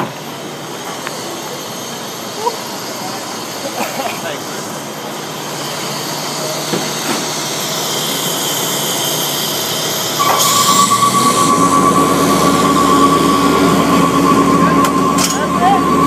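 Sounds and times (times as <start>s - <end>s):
heavy truck machinery running: 0.0s - 16.0s
high whine with lower hum: 10.1s - 16.0s.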